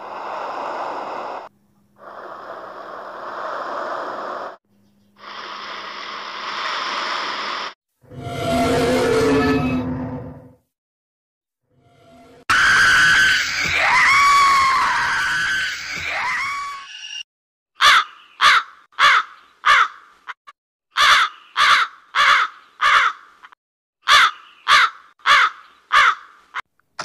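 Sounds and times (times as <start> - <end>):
high wavering scream: 8.1 - 10.4, 11.9 - 17.2
crow cawing: 17.8 - 20.1, 20.9 - 26.4.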